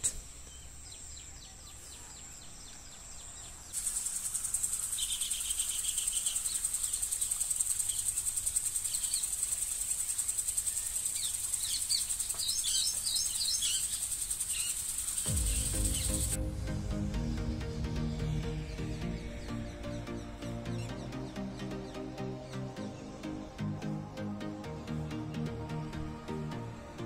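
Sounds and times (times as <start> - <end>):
birds chirping: 0.0 - 27.0
pulsing insect chorus: 2.6 - 27.0
music: 15.2 - 27.0.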